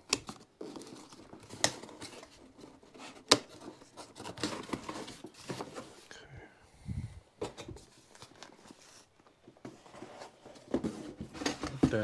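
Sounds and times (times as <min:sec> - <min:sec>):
cardboard scraping and rubbing: 0:07.7 - 0:12.0.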